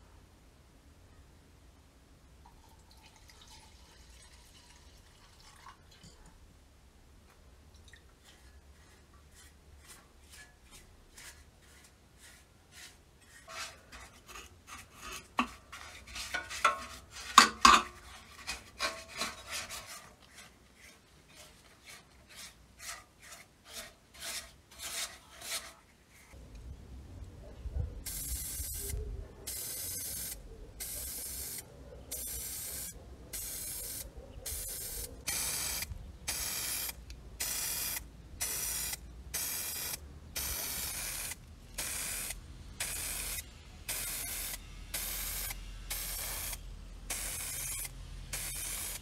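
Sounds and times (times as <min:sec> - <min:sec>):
hand tool strokes on metal: 0:08.3 - 0:25.8.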